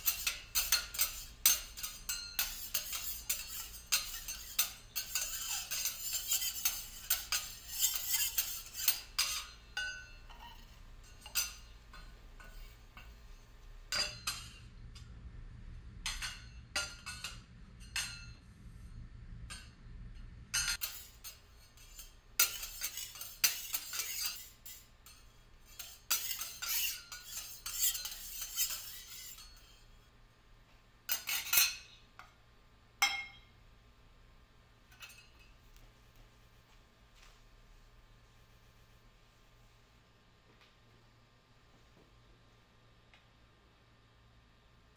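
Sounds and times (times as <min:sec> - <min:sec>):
metal utensils scraping on griddle: 0:00.0 - 0:14.6, 0:20.6 - 0:30.0, 0:31.1 - 0:32.1.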